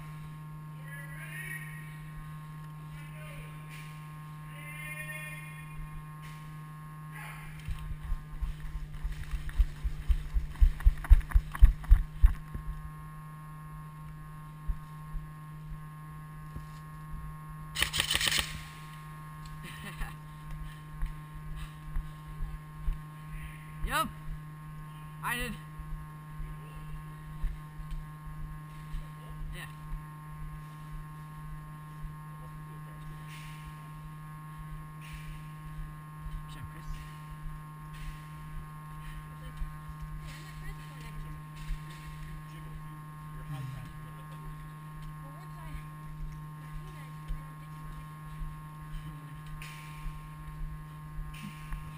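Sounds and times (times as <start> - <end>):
steady low hum: 0.0 - 51.9
running footsteps thudding: 7.7 - 12.7.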